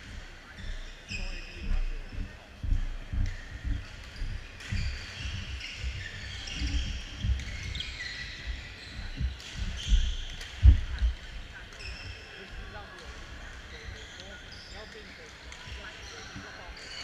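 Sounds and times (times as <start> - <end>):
shoes squeaking on wooden floor: 0.6 - 12.7
low thuds of footfalls: 8.9 - 11.2.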